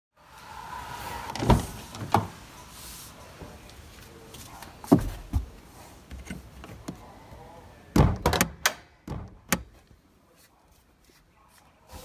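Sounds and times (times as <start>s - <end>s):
car door handle and latch clunks: 8.0s - 9.8s.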